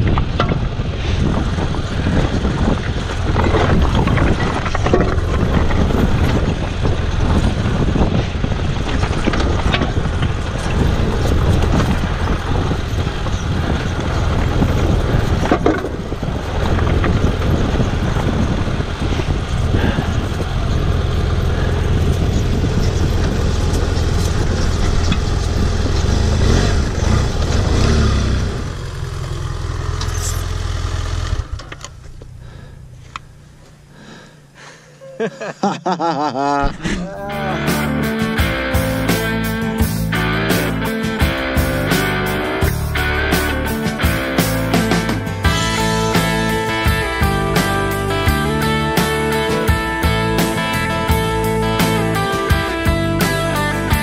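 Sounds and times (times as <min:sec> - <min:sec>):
stones clattering under tyres: 0:00.0 - 0:19.7
motorcycle engine running: 0:00.0 - 0:34.6, 0:37.2 - 0:54.0.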